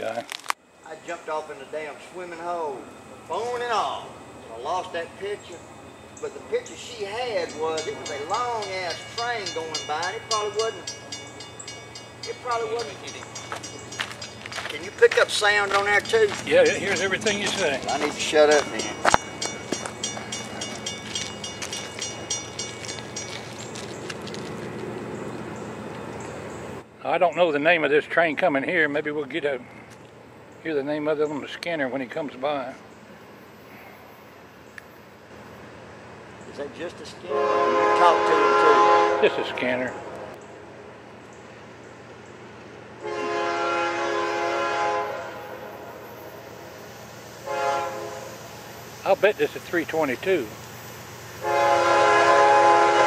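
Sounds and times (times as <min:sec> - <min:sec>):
diesel freight train rumble: 0:00.7 - 0:27.0, 0:29.2 - 0:53.0
railroad crossing bell ringing: 0:02.4 - 0:23.9
locomotive air horn blasts: 0:37.2 - 0:40.4, 0:43.0 - 0:48.8, 0:51.4 - 0:53.0.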